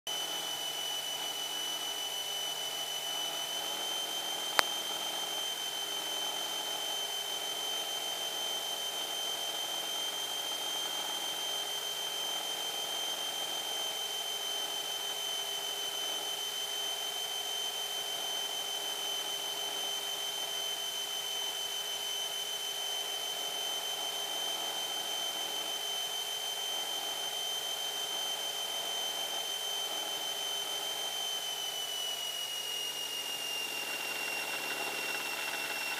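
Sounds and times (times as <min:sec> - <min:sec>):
aircraft engine and propeller: 0:00.1 - 0:35.9.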